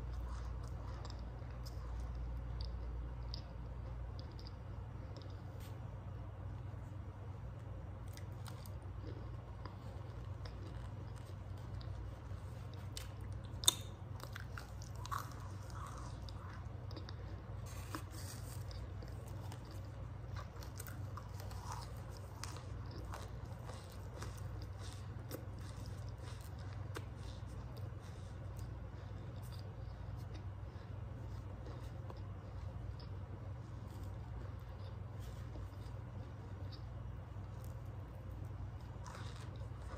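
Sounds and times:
steady low hum: 0.0s - 39.9s
squeaky crunchy chewing: 8.1s - 30.5s.

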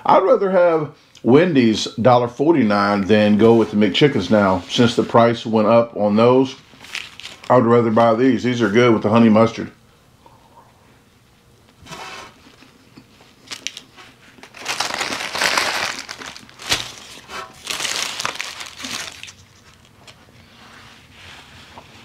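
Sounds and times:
paper wrapper crinkling: 6.8s - 8.2s, 13.3s - 20.3s.

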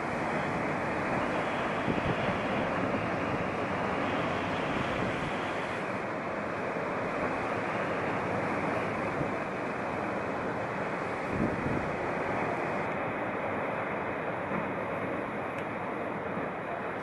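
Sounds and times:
wind on microphone: 0.0s - 6.0s, 11.2s - 12.9s
waves washing over rocks: 0.0s - 17.0s.

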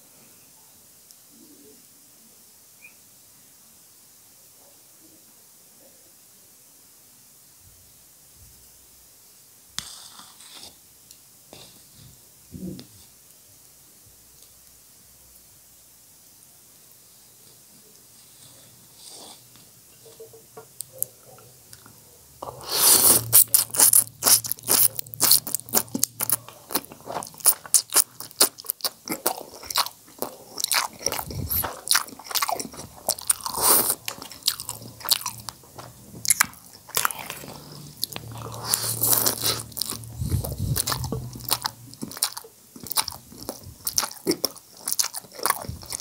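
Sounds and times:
mouth clicks and smacks: 20.8s - 46.0s
man slurping noodles: 22.4s - 24.4s, 33.4s - 34.1s.

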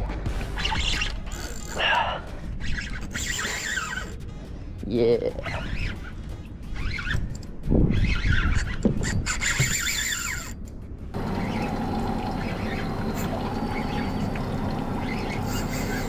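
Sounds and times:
reel squeaks and knocks: 0.6s - 1.9s, 2.6s - 4.2s, 5.4s - 16.0s
fishing reel cranking: 0.8s - 1.9s, 2.6s - 4.2s, 6.7s - 10.6s, 15.0s - 16.0s.

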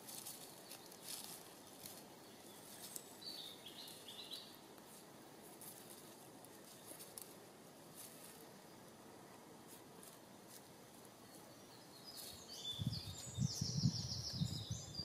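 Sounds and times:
dry grass crackling: 0.0s - 14.8s.

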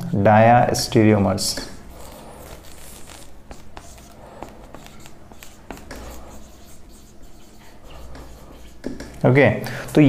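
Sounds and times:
marker squeaking on whiteboard: 1.6s - 9.2s.

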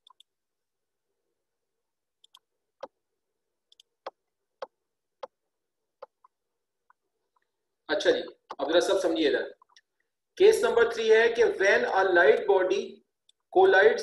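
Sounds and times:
computer mouse clicking: 0.0s - 0.3s, 2.2s - 3.0s.

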